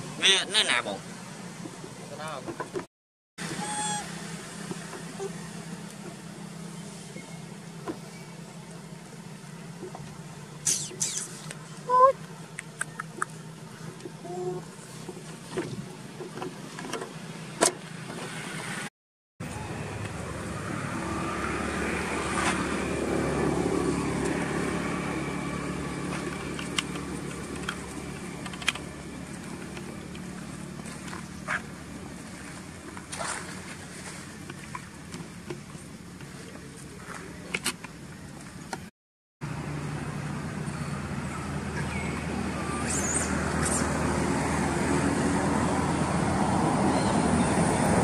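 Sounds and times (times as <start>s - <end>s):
vehicle driving past: 18.2s - 28.1s, 39.5s - 48.0s.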